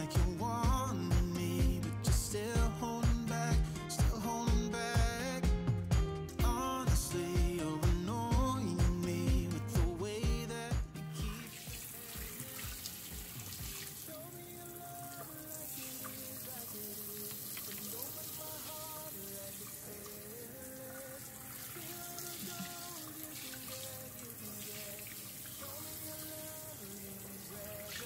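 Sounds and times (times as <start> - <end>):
background music: 0.0 - 28.0
water spraying into sink: 11.2 - 28.0.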